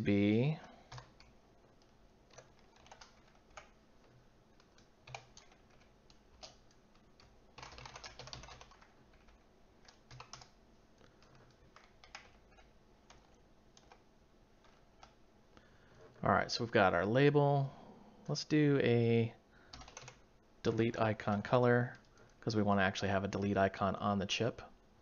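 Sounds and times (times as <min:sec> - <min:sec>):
faint keyboard typing: 0:00.4 - 0:16.3, 0:19.6 - 0:22.5.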